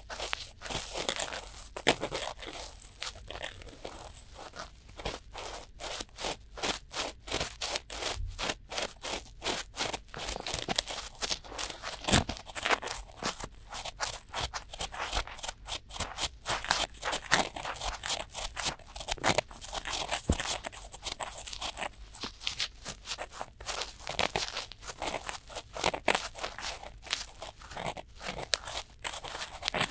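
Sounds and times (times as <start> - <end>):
cotton swabs scratching microphone: 9.9 - 29.9.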